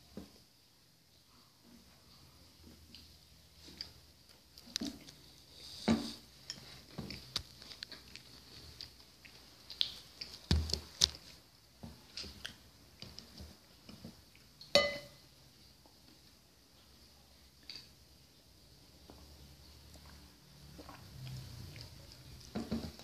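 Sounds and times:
person chewing: 3.8s - 11.3s, 19.8s - 23.0s
dishes and cutlery clicking: 14.7s - 15.2s
sharp ringing clink: 14.8s - 15.2s.

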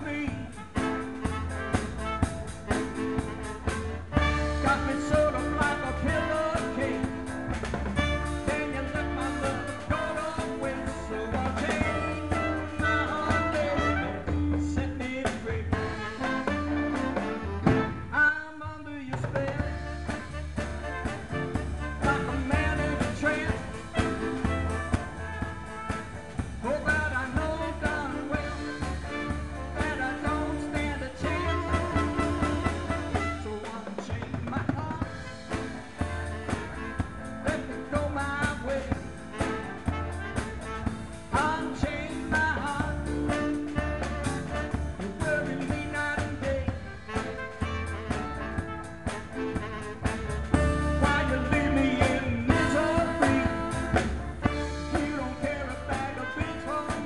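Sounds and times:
man singing into a microphone: 0.0s - 1.1s, 4.2s - 24.7s, 26.6s - 36.0s, 37.4s - 39.8s, 41.3s - 47.3s, 50.5s - 57.0s
guitar: 0.0s - 57.0s
live band playing: 0.0s - 57.0s.

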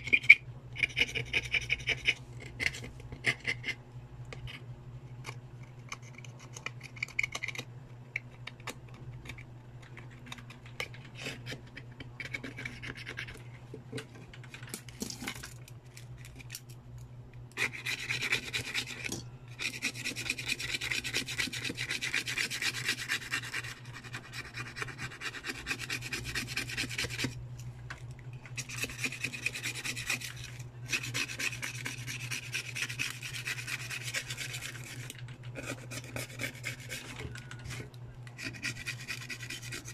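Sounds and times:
hand tool scraping phone screen: 0.0s - 3.8s, 17.6s - 27.4s, 28.6s - 37.8s, 38.4s - 39.9s
steady low hum: 0.0s - 39.9s.

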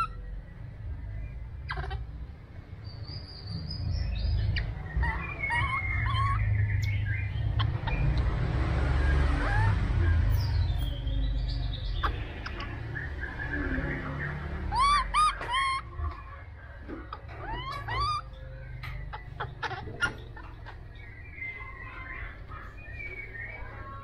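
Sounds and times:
baby monkey squeaks and coos: 0.0s - 0.2s, 1.6s - 2.1s, 4.5s - 8.2s, 9.3s - 11.0s, 13.9s - 16.3s, 16.9s - 23.6s.

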